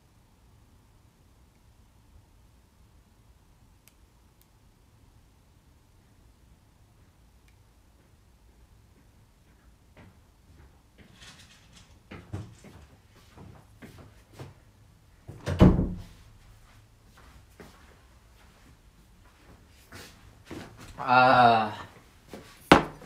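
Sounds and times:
low steady hum and hiss: 0.0 - 23.0
knocks clatter and rustling: 11.0 - 13.0.

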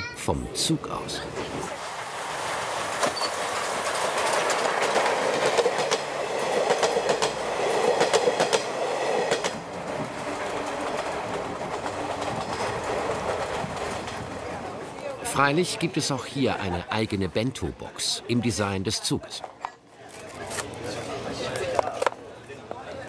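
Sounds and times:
train running noise: 1.2 - 16.9
wheels clacking over rail joints: 1.6 - 15.1.

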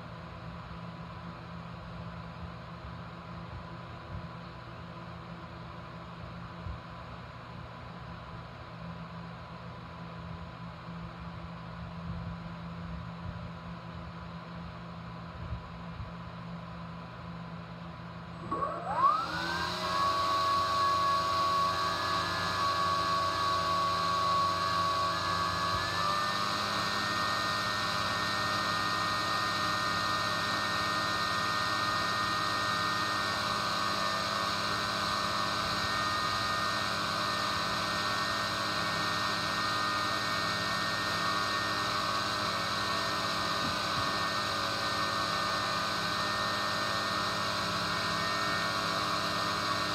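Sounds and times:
electric ducted fan whine: 0.0 - 49.9.

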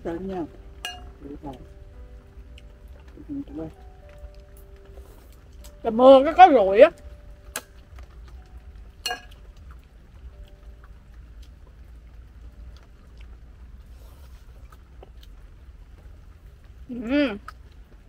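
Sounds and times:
low steady rumble: 0.0 - 18.0
chopsticks clinking ceramic bowl: 0.8 - 1.2, 9.0 - 9.4.

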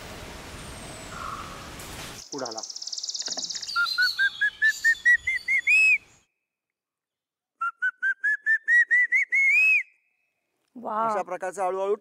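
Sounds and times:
man whistling shrill notes: 3.9 - 6.0, 7.6 - 10.1.

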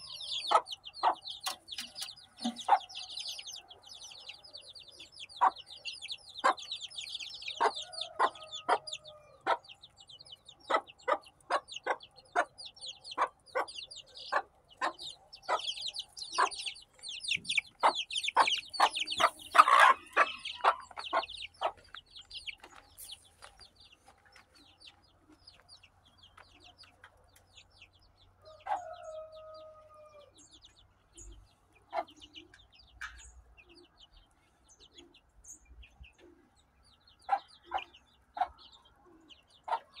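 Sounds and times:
hen clucking: 0.0 - 34.2, 37.2 - 40.0
chicks peeping: 0.0 - 40.0.

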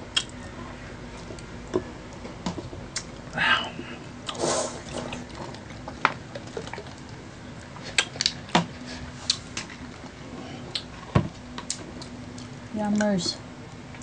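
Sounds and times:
faint steady hum: 0.0 - 14.0
slurp of food: 4.3 - 5.2.

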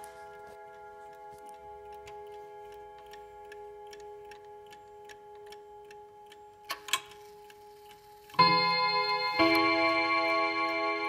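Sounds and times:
clock ticking: 0.0 - 11.0
loud clock clicks: 1.9 - 8.8
faint ringing tone: 8.4 - 11.0.

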